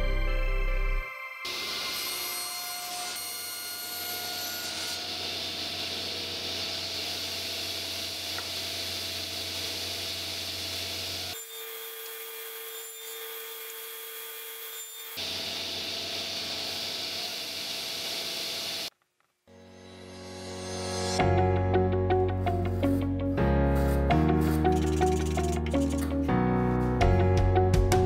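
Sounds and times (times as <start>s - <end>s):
saw cutting wood: 1.4s - 18.9s, 23.9s - 26.4s
table saw running: 1.4s - 18.9s.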